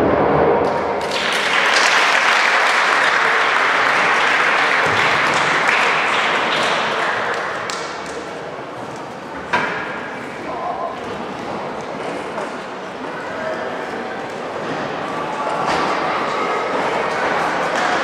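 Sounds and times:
audience applauding: 1.0s - 8.4s.

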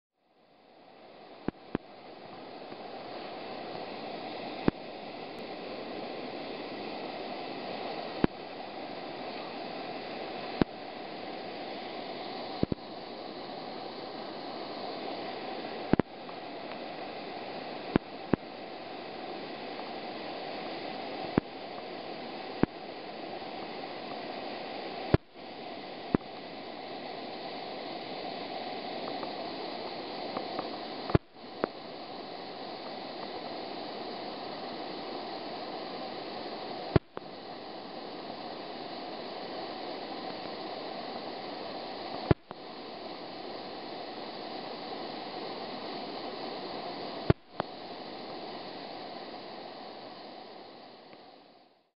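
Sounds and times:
whitewater rushing over rocks: 0.4s - 51.6s.

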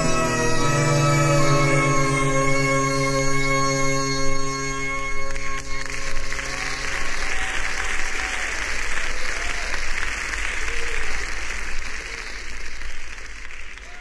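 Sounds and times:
synthesizer chord: 0.0s - 8.2s
audience applauding: 5.1s - 14.0s.

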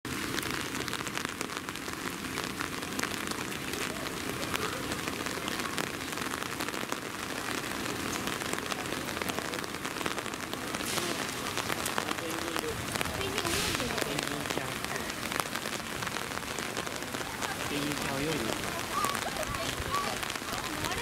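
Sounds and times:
raindrop hits: 0.0s - 21.0s
steady rain falling: 0.0s - 21.0s.

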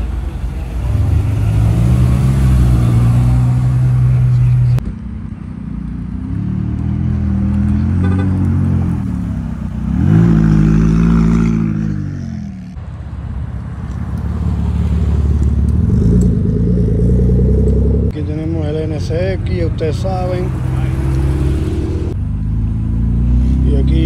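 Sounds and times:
sports car engine revving: 15.0s - 18.2s, 20.2s - 22.2s.

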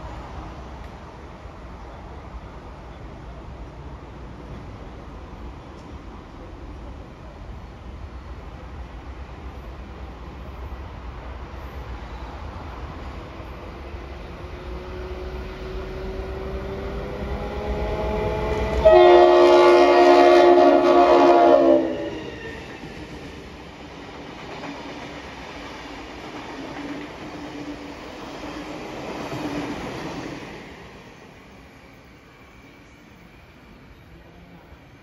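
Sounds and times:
diesel locomotives passing: 0.0s - 35.0s
train horn: 17.4s - 22.8s.

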